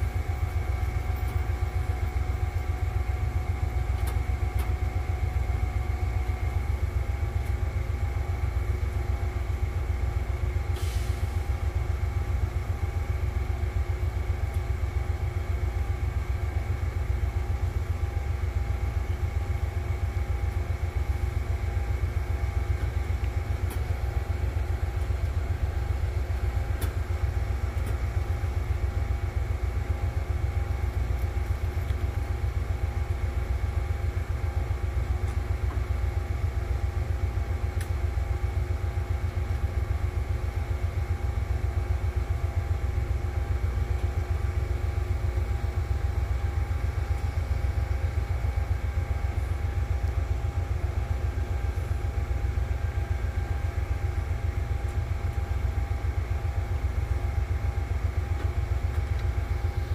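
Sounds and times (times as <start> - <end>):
train mechanical hum: 0.0 - 59.9
brief hiss: 10.7 - 11.4.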